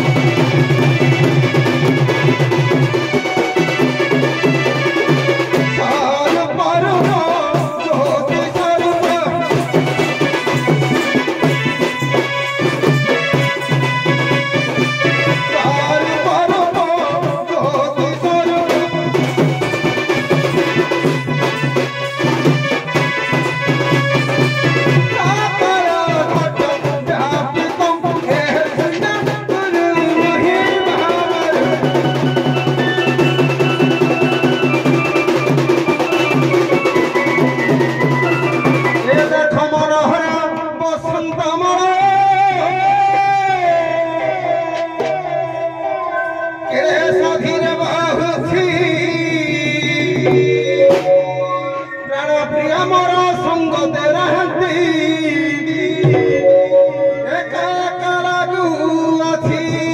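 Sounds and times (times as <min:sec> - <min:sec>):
drum strokes: 0:00.0 - 0:40.7, 0:46.6 - 0:58.9
wavering melody: 0:45.9 - 0:49.3, 0:50.1 - 0:53.2, 0:56.0 - 0:58.8.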